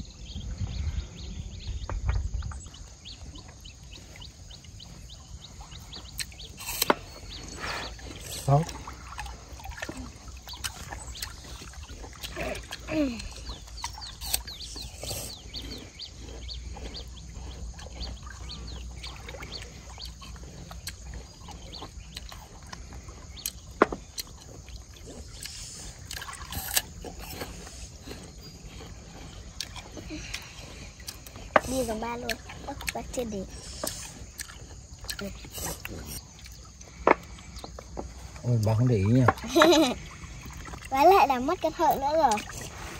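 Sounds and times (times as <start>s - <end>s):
wind rumble on microphone: 0.0s - 6.5s
water lapping against raft: 0.0s - 42.9s.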